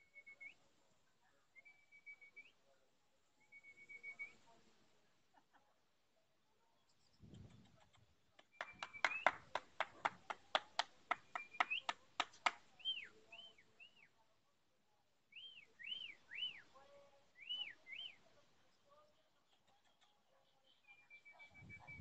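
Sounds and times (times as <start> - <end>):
high whistled chirps: 8.5 - 9.4, 11.3 - 11.9, 20.9 - 22.0.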